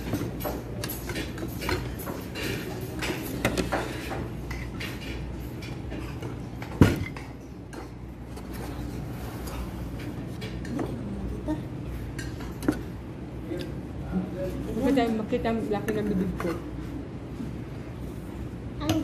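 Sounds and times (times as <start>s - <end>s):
cutlery clinking on plates: 0.0s - 8.0s.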